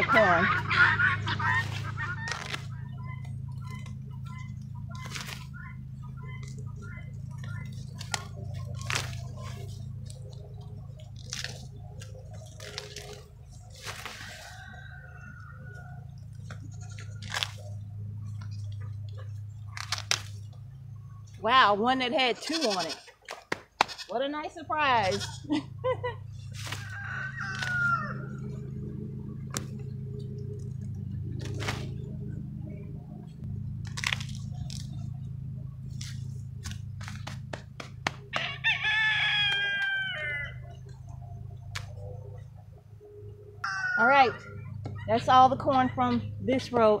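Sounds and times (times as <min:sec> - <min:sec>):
low hum: 0:00.0 - 0:23.2, 0:24.0 - 0:47.0
dry husks rustling: 0:00.0 - 0:47.0
corn ears snapping off stalks: 0:01.5 - 0:14.5, 0:16.4 - 0:17.7, 0:18.3 - 0:20.6, 0:23.2 - 0:24.1, 0:26.4 - 0:28.1, 0:29.5 - 0:29.9, 0:30.6 - 0:32.0, 0:33.8 - 0:35.2, 0:35.9 - 0:38.6, 0:41.7 - 0:42.0
rooster crowing: 0:14.0 - 0:17.6, 0:26.5 - 0:29.0, 0:38.2 - 0:40.8, 0:43.6 - 0:45.1.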